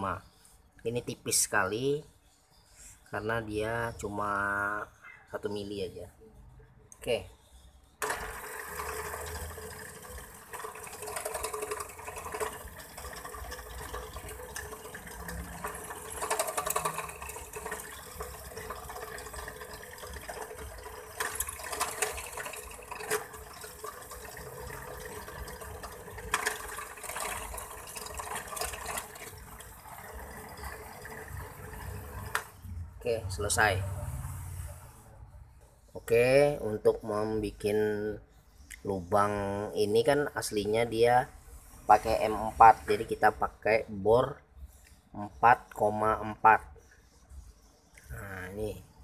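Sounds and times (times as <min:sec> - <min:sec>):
drill press motor hum: 0:08.0 - 0:32.6.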